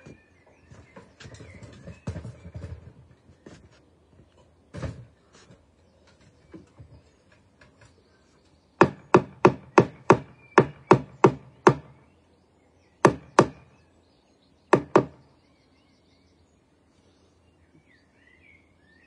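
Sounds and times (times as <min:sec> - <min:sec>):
hammer striking timber: 0:08.8 - 0:12.0, 0:13.0 - 0:13.7, 0:14.7 - 0:15.2.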